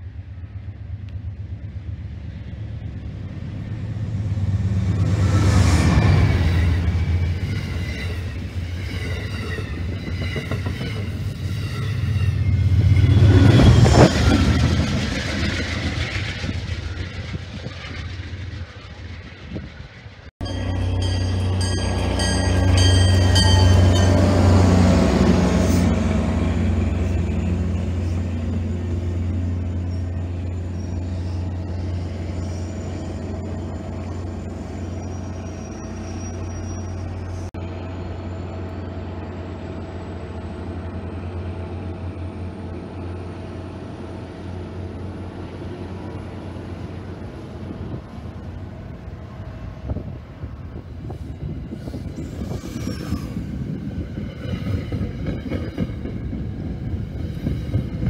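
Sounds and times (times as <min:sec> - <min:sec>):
train rumbling: 0:00.0 - 0:58.0
high ringing: 0:20.4 - 0:26.0.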